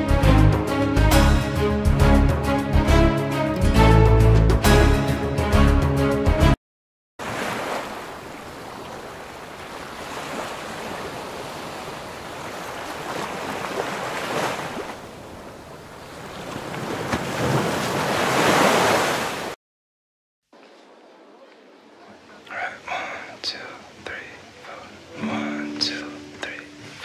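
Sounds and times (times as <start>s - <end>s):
sea waves washing on shore: 7.2s - 19.6s.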